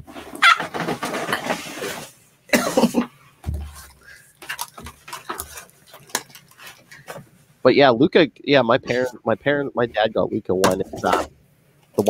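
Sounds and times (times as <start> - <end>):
person coughing: 2.5 - 3.2.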